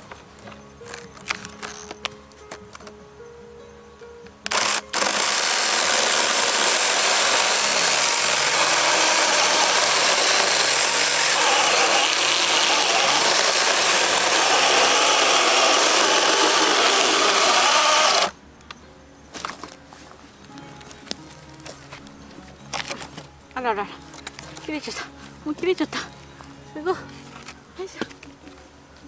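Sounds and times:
mini chainsaw cutting log: 4.4 - 18.4.

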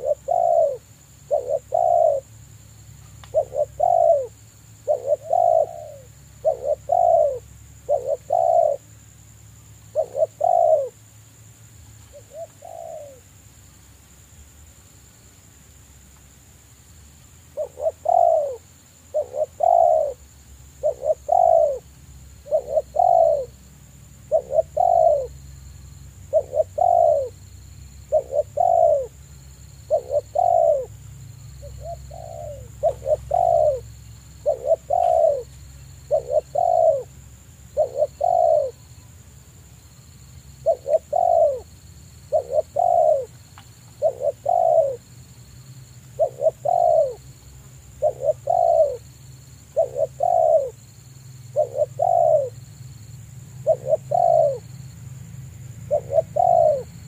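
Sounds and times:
dove cooing: 0.0 - 2.3, 3.3 - 8.9, 9.9 - 11.0, 12.1 - 13.2, 17.6 - 23.6, 24.2 - 25.4, 26.2 - 27.4, 28.0 - 29.2, 29.9 - 31.0, 31.6 - 39.0, 40.6 - 45.0, 46.1 - 47.2, 48.0 - 49.0, 49.7 - 50.8, 51.5 - 52.6, 53.6 - 54.7, 55.9 - 57.0.

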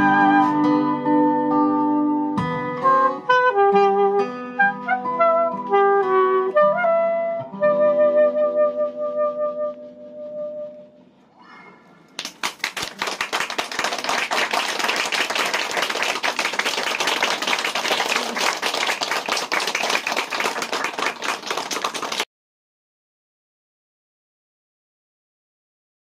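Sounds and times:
audience applause: 12.2 - 22.3.

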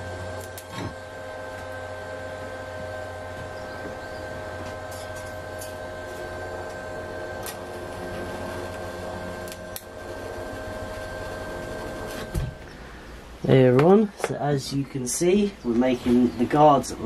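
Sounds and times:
welding arc buzz: 0.0 - 13.8
low hum: 0.0 - 17.0.

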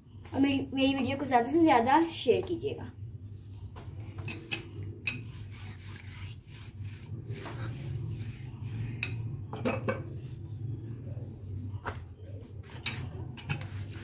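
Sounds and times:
low steady hum: 0.0 - 14.0
rolling pin rubbing dough: 3.1 - 9.5, 10.2 - 14.0.

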